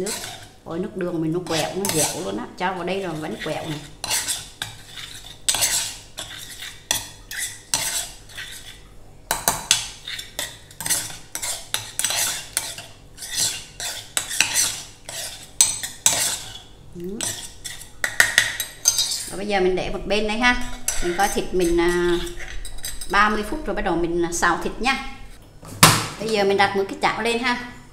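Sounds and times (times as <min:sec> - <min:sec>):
metal spoon scraping clay pot: 0:00.0 - 0:00.6, 0:01.4 - 0:08.8, 0:09.4 - 0:19.5, 0:20.4 - 0:23.6.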